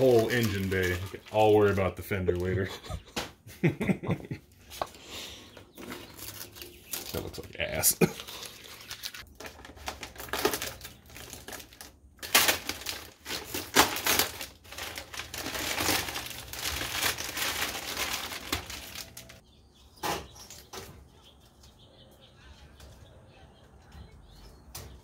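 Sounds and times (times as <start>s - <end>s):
plastic sheet crinkling: 0.0s - 2.6s, 5.8s - 19.4s.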